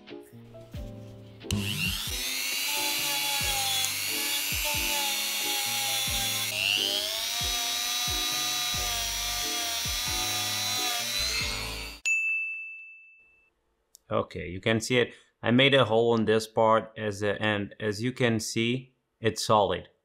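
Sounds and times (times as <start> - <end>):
rotary tool wire brush whining: 1.5 - 12.0.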